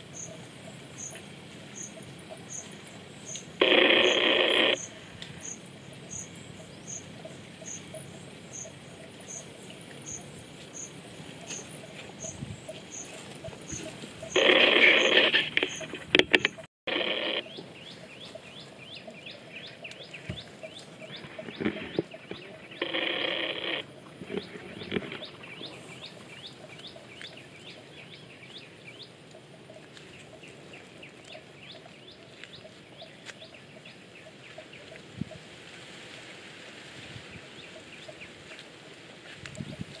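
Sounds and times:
birds chirping: 0:00.0 - 0:35.4
loud bird call: 0:03.3 - 0:08.7, 0:11.5 - 0:16.0, 0:21.0 - 0:25.8.

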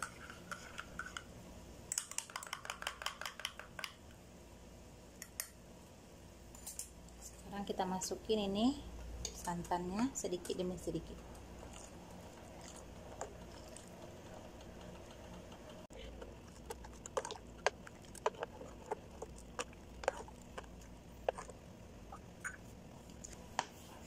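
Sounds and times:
low steady hum: 0:03.9 - 0:24.0
metal utensil stirring sauce: 0:11.6 - 0:21.6.

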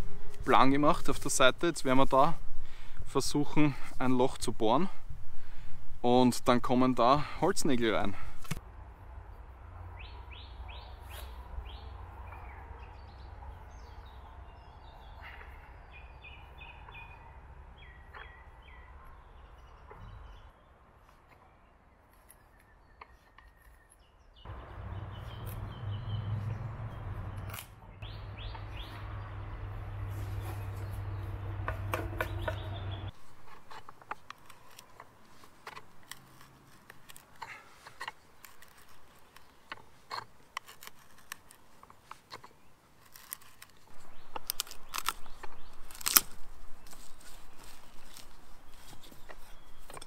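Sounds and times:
auger creaking into wood: 0:31.6 - 0:50.0.

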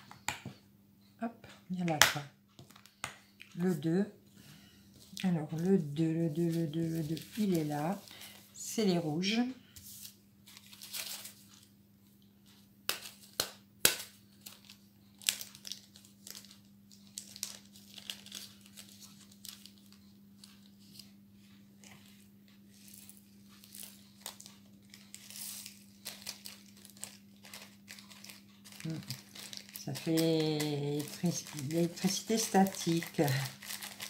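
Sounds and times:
faint low hum: 0:00.0 - 0:34.0
plastic bag crinkling: 0:06.4 - 0:08.5, 0:14.4 - 0:21.0, 0:22.7 - 0:34.0.

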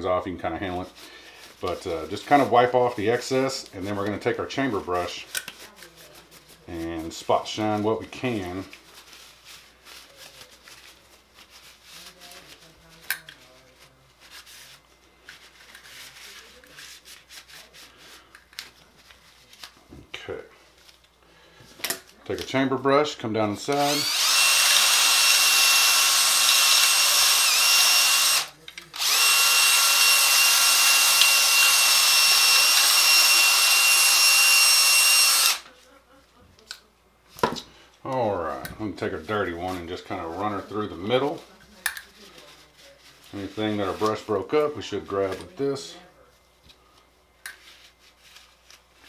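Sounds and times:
brush scrubbing metal: 0:00.6 - 0:19.7, 0:39.0 - 0:45.4
cordless drill whining: 0:23.8 - 0:35.7.

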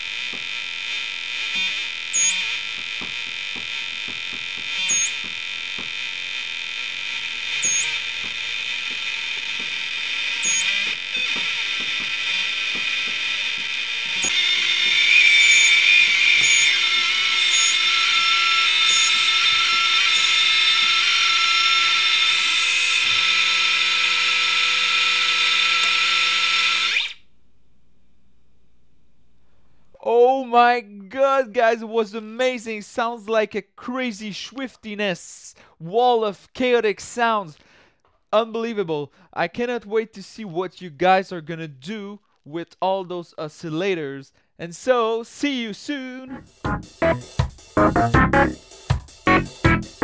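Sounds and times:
chaotic buzzing synth tones: 0:00.0 - 0:27.2
swooping synth chirp: 0:02.1 - 0:02.5, 0:04.9 - 0:05.2, 0:07.6 - 0:08.0, 0:10.4 - 0:10.8, 0:13.9 - 0:23.2
low synth tones: 0:49.3 - 0:50.0.

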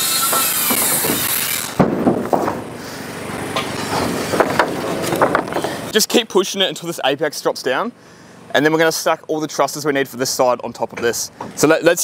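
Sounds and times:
wooden knocks: 0:01.8 - 0:02.7, 0:03.6 - 0:05.8.

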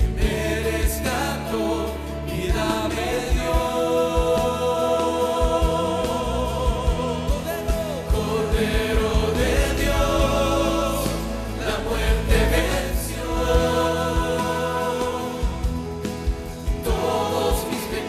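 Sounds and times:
man singing: 0:00.0 - 0:15.8, 0:16.8 - 0:18.0
backing vocalists singing: 0:00.0 - 0:18.0
band playing: 0:02.1 - 0:18.0
low drum beat: 0:05.3 - 0:18.0.

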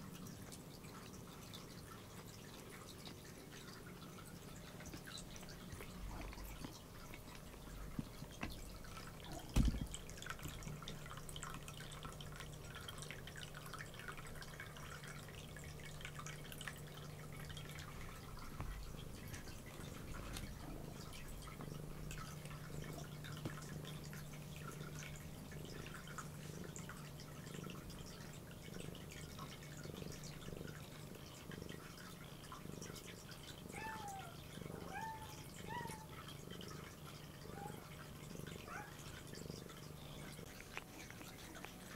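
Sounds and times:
cat licking its fur: 0:36.1 - 0:41.9.

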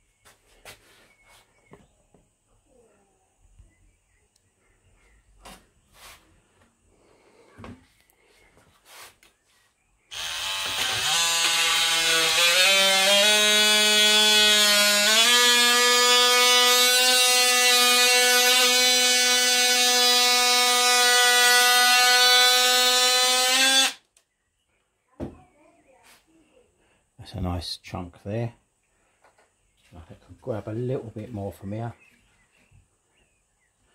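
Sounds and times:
oscillating tool cutting plastic: 0:10.1 - 0:24.0.

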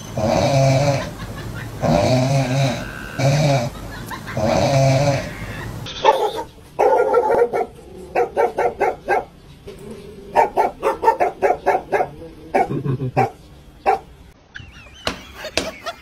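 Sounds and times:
dog barking: 0:06.0 - 0:09.4, 0:10.3 - 0:14.1.

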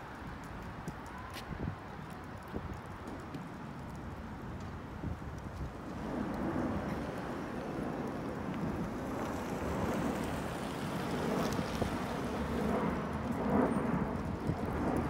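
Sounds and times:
wind buffeting microphone: 0:00.0 - 0:15.0
vehicles driving slowly away: 0:00.1 - 0:15.0.

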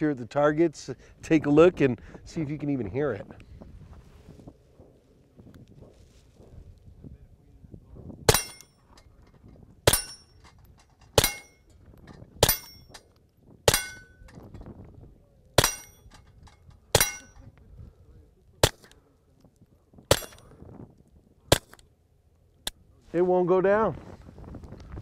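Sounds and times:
short metallic ring: 0:08.3 - 0:09.0, 0:09.9 - 0:11.8, 0:12.4 - 0:13.1, 0:13.7 - 0:14.3, 0:15.6 - 0:17.4
suppressed pistol shots: 0:15.6 - 0:16.0, 0:18.6 - 0:19.0, 0:20.1 - 0:20.5.

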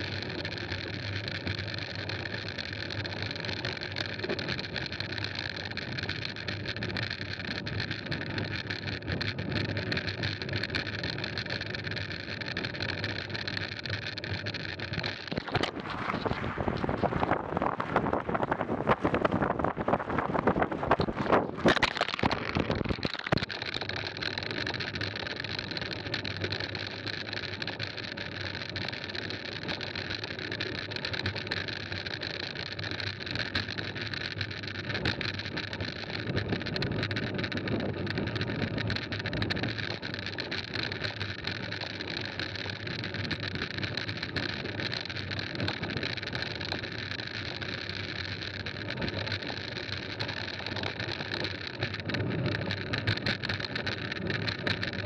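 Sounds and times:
bike tyres rolling over gravel: 0:00.0 - 0:55.0
wind noise on microphone: 0:15.3 - 0:23.5.

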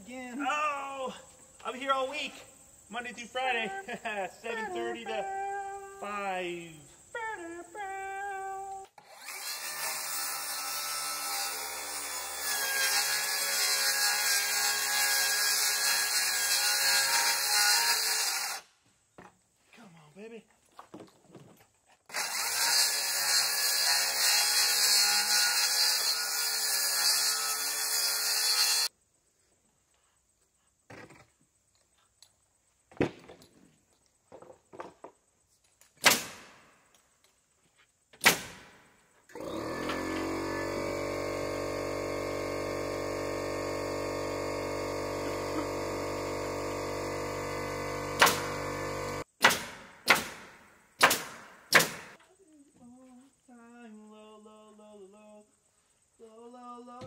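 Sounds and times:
circular saw cutting panel: 0:08.9 - 0:18.6, 0:22.1 - 0:28.9, 0:38.3 - 0:49.3
pneumatic nailer shots: 0:22.1 - 0:28.9, 0:36.0 - 0:36.7, 0:38.2 - 0:52.2
air compressor running: 0:39.3 - 0:49.2.

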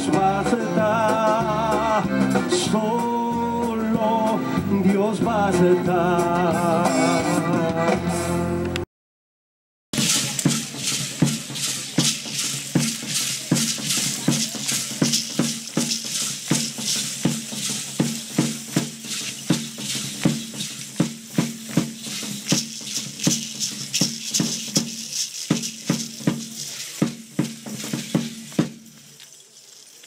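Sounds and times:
large drum beating: 0:10.0 - 0:29.0
rattles shaking: 0:10.0 - 0:30.0.

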